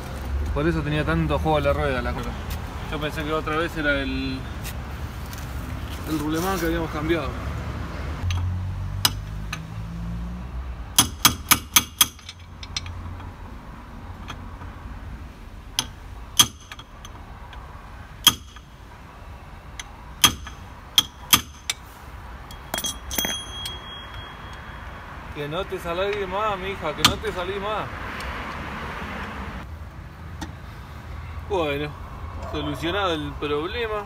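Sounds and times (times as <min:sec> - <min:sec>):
hammer tapping metal: 0:20.2 - 0:21.8, 0:22.5 - 0:24.7
metallic ring: 0:22.4 - 0:25.2.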